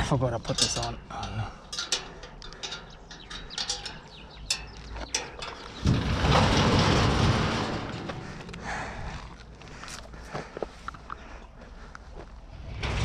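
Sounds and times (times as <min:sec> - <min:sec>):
bicycle mechanism clicking and rattling: 0:00.4 - 0:05.8.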